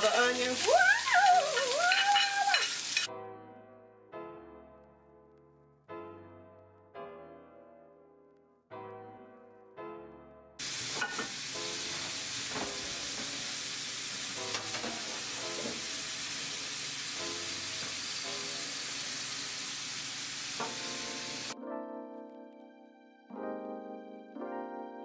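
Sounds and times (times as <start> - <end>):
vegetables sizzling in frying pan: 0.0 - 3.1, 10.6 - 21.6
soft piano music: 1.6 - 19.6, 20.6 - 25.0.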